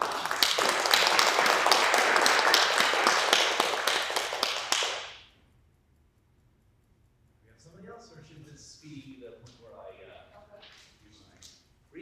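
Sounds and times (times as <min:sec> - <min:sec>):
audience applauding: 0:00.0 - 0:05.2.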